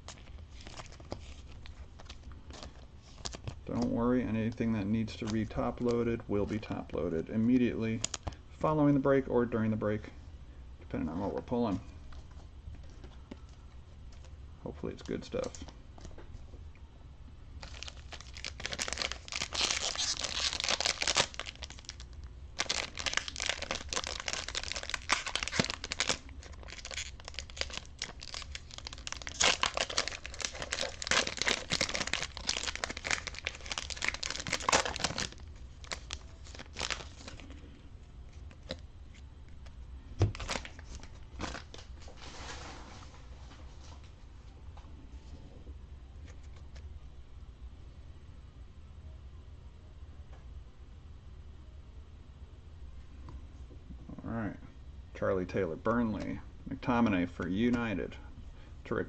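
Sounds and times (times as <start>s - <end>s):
foil wrapper crinkling and tearing: 0.0s - 3.6s, 17.6s - 37.6s, 40.3s - 41.9s.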